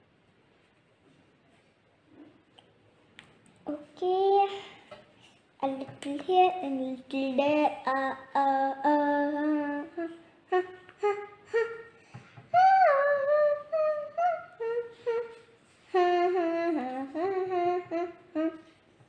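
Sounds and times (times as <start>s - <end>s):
girl humming: 7.9s - 18.8s.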